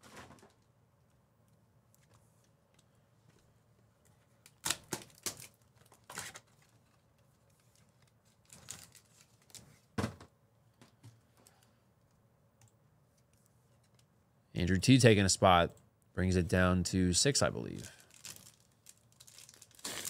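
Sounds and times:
card packs tearing and rustling: 4.6 - 7.0, 7.8 - 9.9, 17.7 - 20.0.

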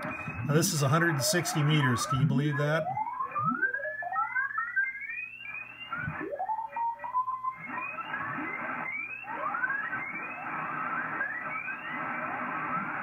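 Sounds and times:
radio band hiss: 0.0 - 3.0, 9.9 - 13.0
morse code tones gliding in pitch: 0.0 - 3.6.

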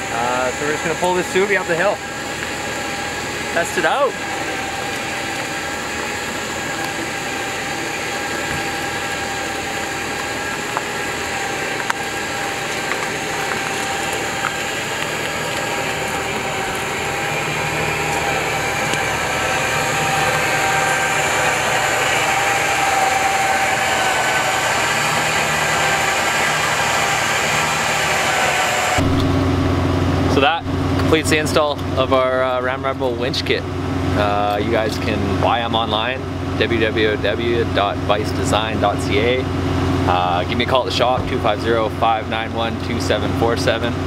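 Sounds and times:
electric winch motor whine: 0.0 - 44.0.

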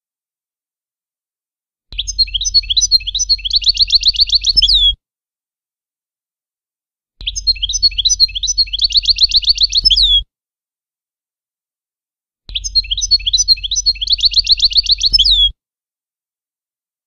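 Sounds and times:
goldfinch song: 1.9 - 5.0, 7.2 - 10.2, 12.5 - 15.5.

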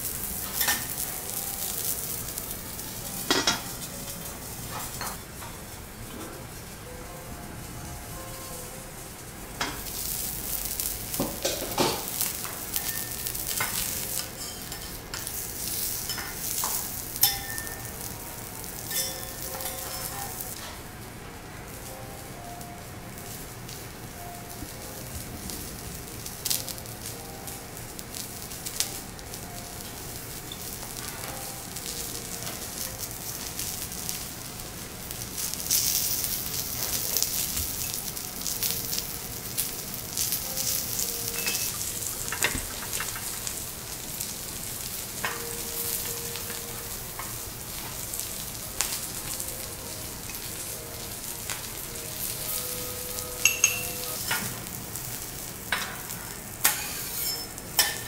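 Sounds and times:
meat sizzling on a griddle: 0.0 - 58.0
metal tongs tapping griddle: 11.1 - 18.1, 18.8 - 20.7, 40.1 - 43.5, 53.4 - 54.6, 55.7 - 58.0.

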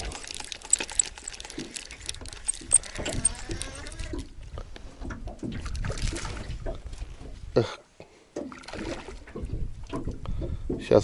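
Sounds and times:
small clicks and knocks: 0.0 - 5.6
water splashing and trickling: 0.0 - 11.0.

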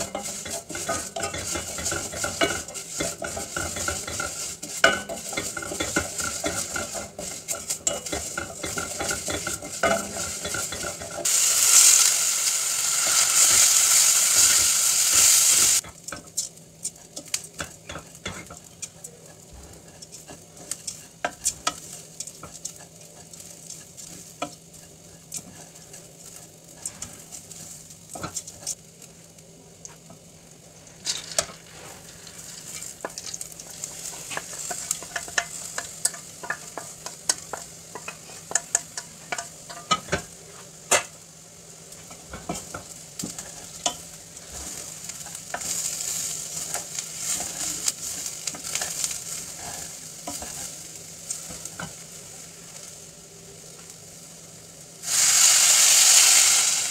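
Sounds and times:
wooden spoon scraping a pot: 0.0 - 12.0, 15.2 - 28.8, 31.1 - 40.8, 42.0 - 52.0
food sizzling in hot oil: 0.0 - 56.9.

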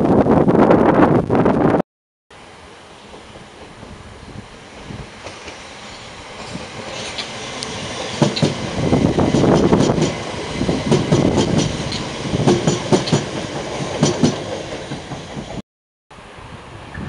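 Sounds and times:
train rumbling past: 2.4 - 17.0
wheels clacking over rail joints: 6.3 - 15.6.

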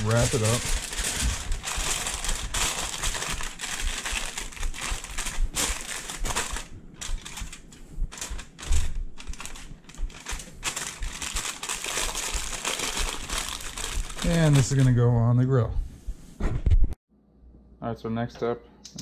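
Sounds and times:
aluminum foil crinkling: 0.0 - 15.1.

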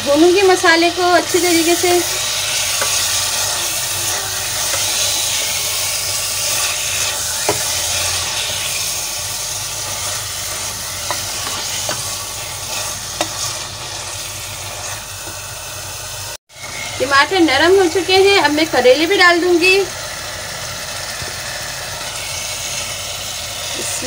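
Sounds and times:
food sizzling in hot oil: 0.0 - 24.0.

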